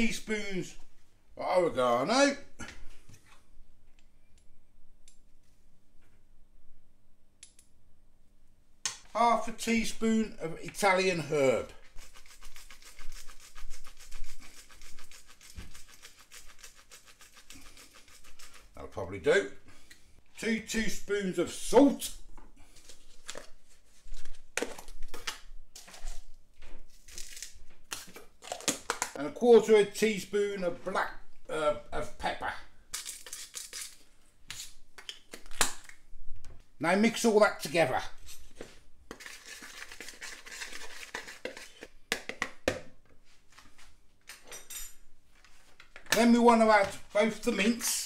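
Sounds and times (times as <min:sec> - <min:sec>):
fork scraping in plastic bowl: 0:39.1 - 0:41.9.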